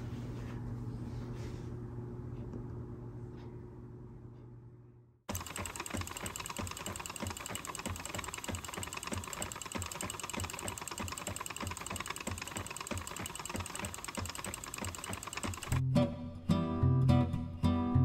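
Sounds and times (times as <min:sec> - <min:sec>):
spinning wheel knocking and clicking: 0:05.3 - 0:15.8.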